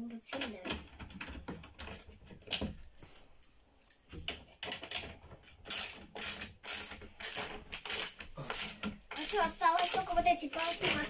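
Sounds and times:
ratchet wrench clicking: 5.7 - 11.0.

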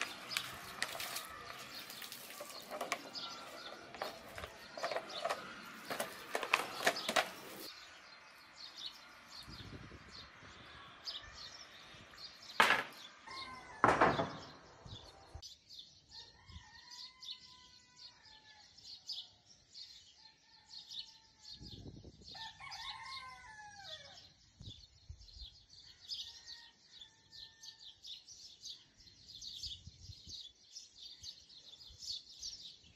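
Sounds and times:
birds chirping: 0.0 - 18.0
sharp knocks: 12.6 - 13.0, 13.8 - 14.8
rooster calls: 13.2 - 14.2.

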